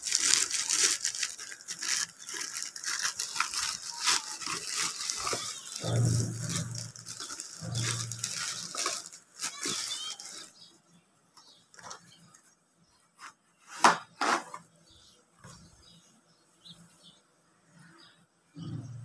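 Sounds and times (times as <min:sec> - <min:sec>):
plastic mailer crinkling: 0:00.0 - 0:10.7.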